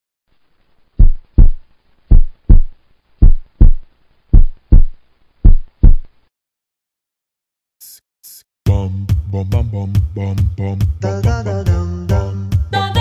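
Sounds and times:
heartbeat thumps: 1.0s - 6.1s.

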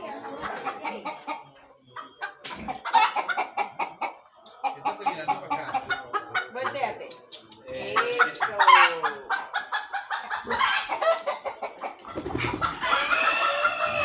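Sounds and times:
chickens clucking: 0.0s - 14.0s
rooster crowing: 12.8s - 14.0s.

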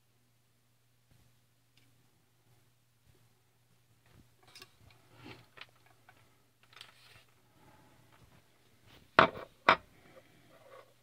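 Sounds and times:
handling rustles and clicks: 4.0s - 7.4s.

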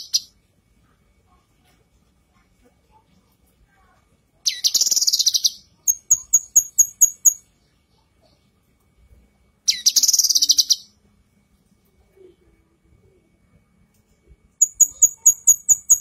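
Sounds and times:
bird buzzy trill: 4.5s - 7.4s, 9.7s - 11.0s, 14.6s - 16.0s.

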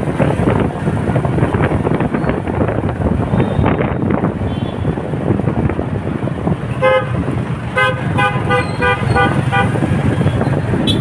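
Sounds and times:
road traffic rumble: 0.0s - 11.0s
wind on microphone: 0.0s - 11.0s
vehicle horn beeping: 4.5s - 4.9s, 7.8s - 9.8s.

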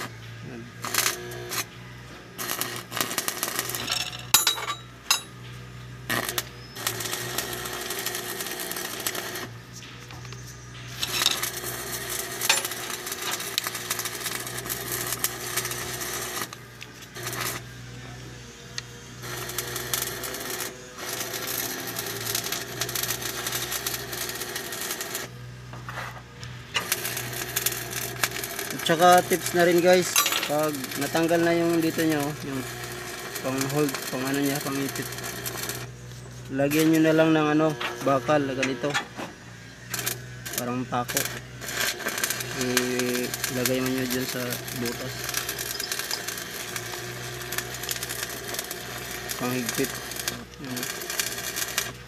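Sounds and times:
metal clinking and scraping: 2.4s - 17.6s, 19.3s - 32.4s, 41.6s - 52.0s.

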